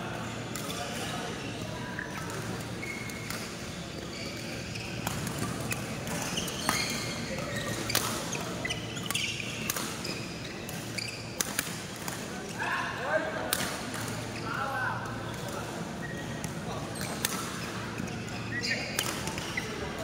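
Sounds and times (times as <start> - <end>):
chatter in hall: 0.0 - 20.0
shoe squeaks on court floor: 0.2 - 11.4, 16.0 - 20.0.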